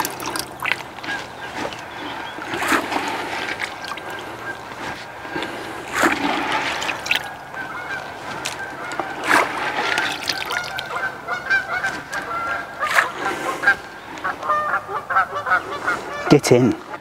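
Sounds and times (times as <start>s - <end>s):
bait splashing into water: 0.0s - 1.2s, 2.4s - 4.6s, 5.9s - 11.0s
bird calling: 0.0s - 17.0s.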